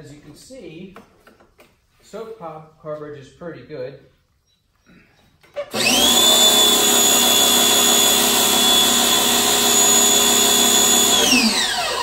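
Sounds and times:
pressure washer motor whining: 5.5 - 12.0.

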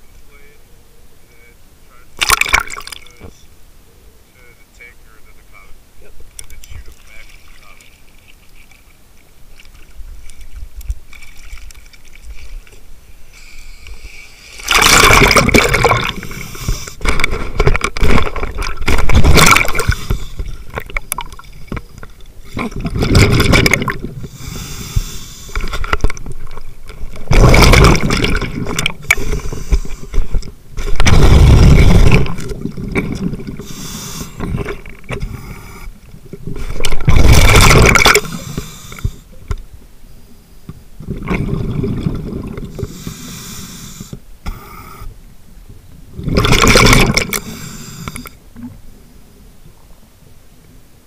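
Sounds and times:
regulator hiss on inhale: 13.2 - 14.7, 16.2 - 17.0, 19.5 - 20.6, 24.2 - 25.8, 29.0 - 30.3, 33.6 - 34.6, 35.2 - 36.0, 38.1 - 39.4, 42.7 - 45.2, 47.2 - 48.4
rush of exhaled bubbles: 14.5 - 21.6, 22.4 - 26.2, 27.0 - 35.4, 36.4 - 39.2, 41.0 - 44.1, 46.2 - 48.3.

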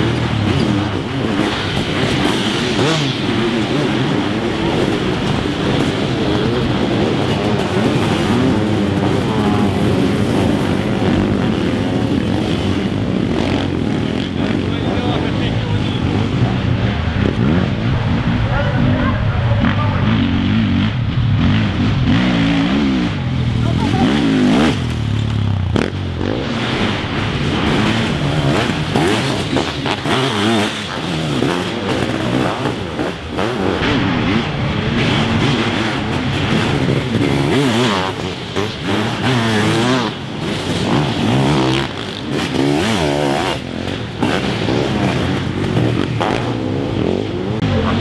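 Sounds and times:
motorcycle engines racing and revving: 0.0 - 48.0.

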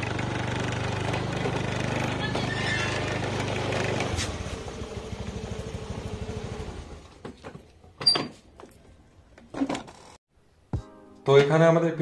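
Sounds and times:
vehicle engine idling: 0.0 - 7.2.

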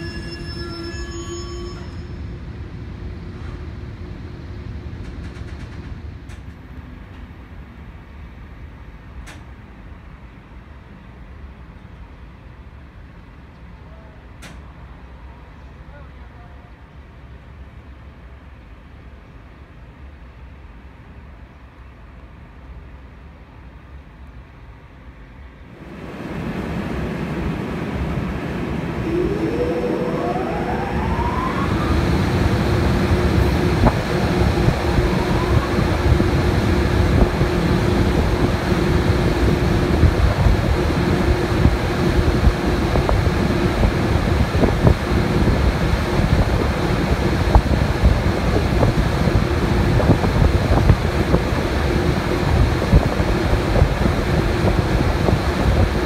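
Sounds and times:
cooling blowers whining: 25.7 - 56.0
rush of air: 25.7 - 56.0.

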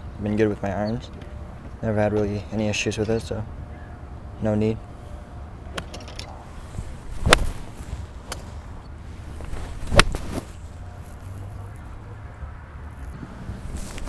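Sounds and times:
steady low rumble: 3.3 - 14.0
golf clubs striking balls: 5.6 - 11.2.

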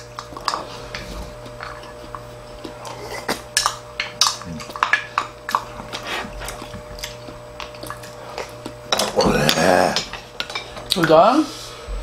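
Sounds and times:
steady low hum: 0.0 - 12.0
spoon and chopsticks clinking bowls: 7.6 - 11.2.

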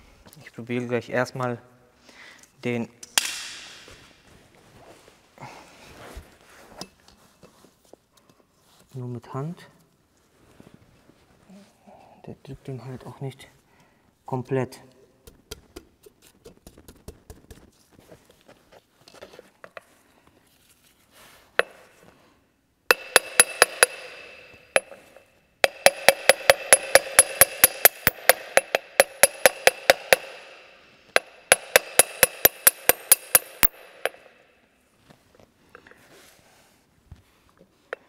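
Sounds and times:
hammer tapping metal sleeve: 21.6 - 21.9, 22.9 - 34.4.

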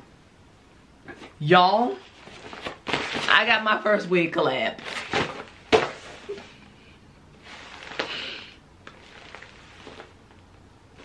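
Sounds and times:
woman breathing and sniffing: 6.3 - 10.0.

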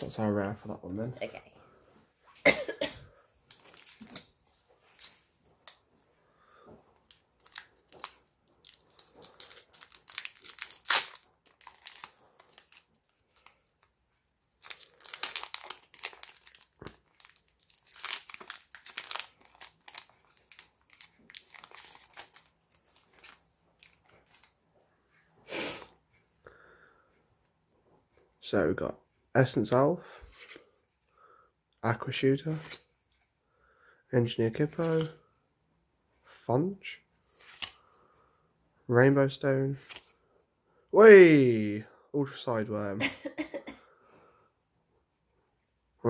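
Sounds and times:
foil wrapper crinkling and tearing: 7.2 - 13.6, 14.6 - 24.5.

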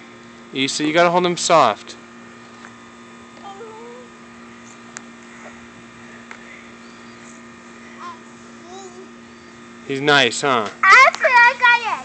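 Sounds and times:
steady low hum: 0.0 - 12.0
soft wavering voice: 3.4 - 4.2.

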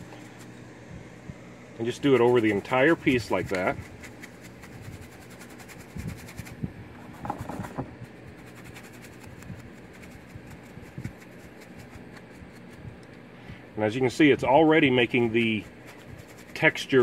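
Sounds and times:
steady low hum: 0.0 - 17.0
paintbrush scrubbing on concrete: 1.8 - 13.0, 14.8 - 17.0.

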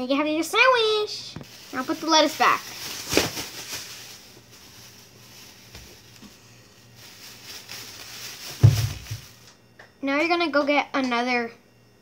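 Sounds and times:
low steady hum: 0.0 - 12.0
plastic bag rustling: 0.6 - 9.5.

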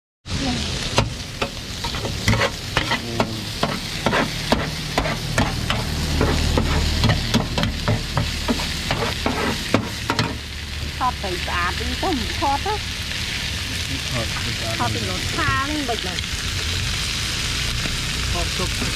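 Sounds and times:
food sizzling: 0.2 - 18.9
metal spatula clacking on griddle: 1.4 - 10.4.

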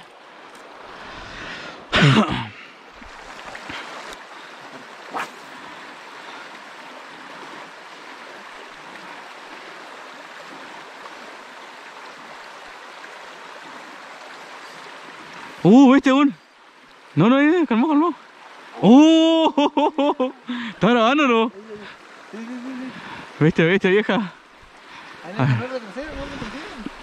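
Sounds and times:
river rushing over gravel: 25.0 - 27.0.

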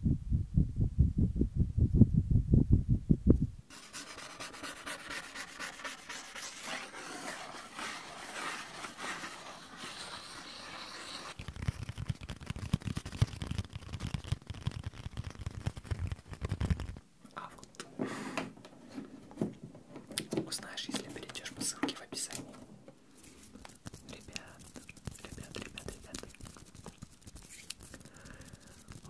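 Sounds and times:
paper rubbing and rustling: 3.7 - 17.0, 23.1 - 29.0.

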